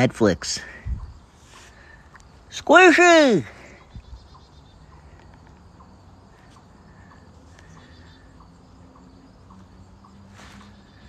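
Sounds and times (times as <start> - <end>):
quiet chirp: 3.4 - 11.0.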